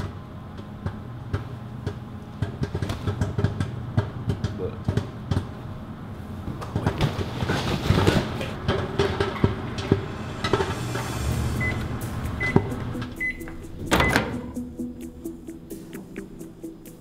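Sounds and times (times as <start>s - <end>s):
microwave keypad beeps: 11.6s - 11.8s, 12.4s - 14.4s.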